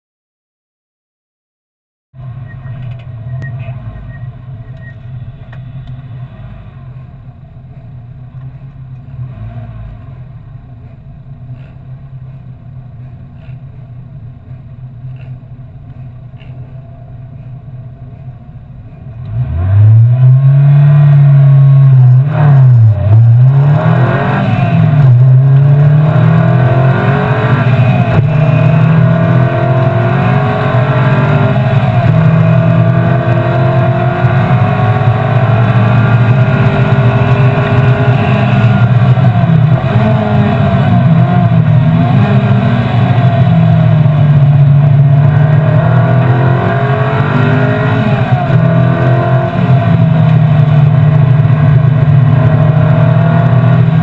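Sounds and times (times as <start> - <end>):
race car engine revving: 19.1 - 54.0.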